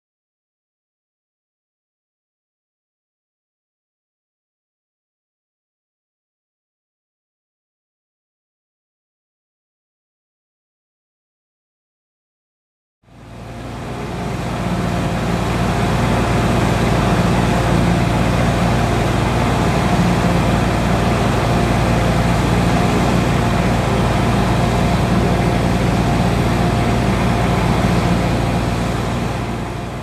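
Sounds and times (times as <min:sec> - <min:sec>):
engine running with low hum: 0:13.1 - 0:30.0.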